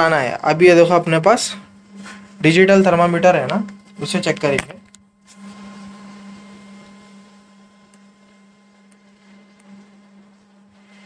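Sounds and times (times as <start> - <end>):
air conditioner humming: 0.0 - 11.0.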